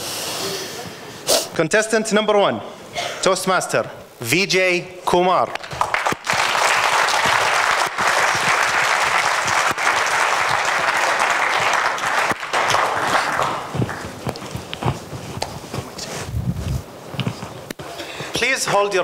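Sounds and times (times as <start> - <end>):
audience applauding: 5.5 - 14.6.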